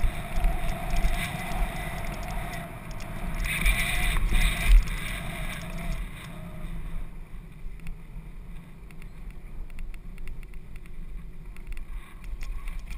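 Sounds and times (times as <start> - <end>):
bike clicks and rattles: 0.0 - 6.4, 8.8 - 12.9
wind on microphone: 0.0 - 7.3
bike tyres rumbling on dirt: 0.0 - 12.9.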